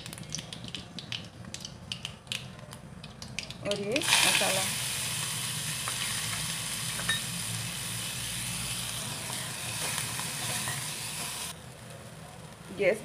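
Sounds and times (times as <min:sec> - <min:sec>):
food sizzling in oil: 0:03.7 - 0:11.6.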